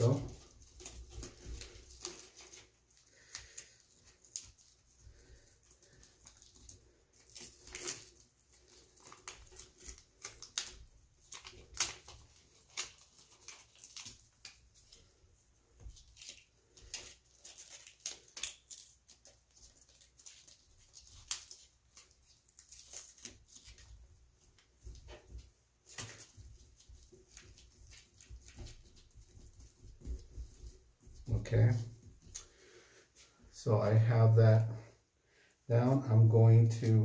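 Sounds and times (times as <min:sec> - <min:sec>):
dressing rustling and crinkling: 0:00.0 - 0:33.5.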